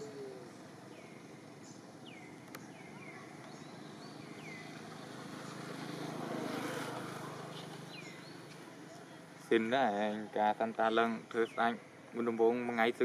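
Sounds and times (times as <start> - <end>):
vehicle engine hum: 0.0 - 9.5.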